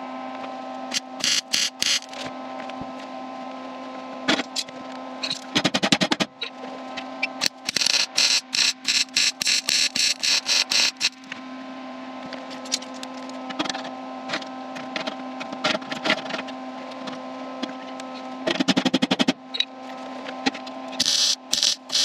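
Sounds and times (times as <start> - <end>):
steady hum: 0.0 - 18.4, 19.4 - 22.0
welder crackling pulses: 0.9 - 2.2, 7.4 - 11.3, 21.0 - 22.0.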